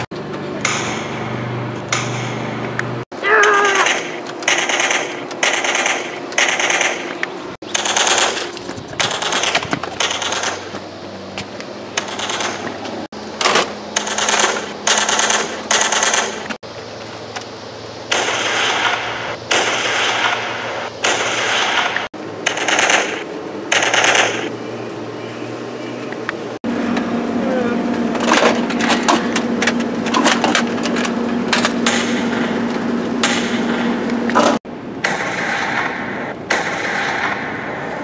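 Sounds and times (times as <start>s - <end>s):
rapid-fire gunfire bursts: 3.8s - 10.7s, 12.0s - 12.8s, 13.9s - 16.6s, 18.1s - 24.5s, 33.2s - 37.9s.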